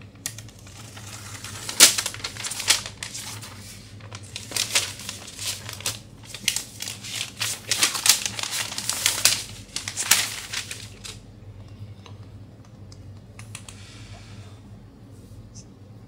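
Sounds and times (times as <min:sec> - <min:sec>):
plastic wrap crinkling: 0:00.3 - 0:11.2.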